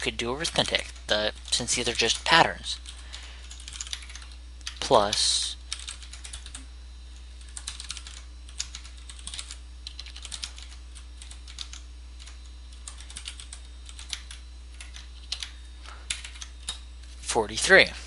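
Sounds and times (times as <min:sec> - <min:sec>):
steady low hum: 0:00.0 - 0:18.0
keyboard keys clicking: 0:02.8 - 0:04.8, 0:05.7 - 0:06.6, 0:07.4 - 0:15.5, 0:16.1 - 0:16.8.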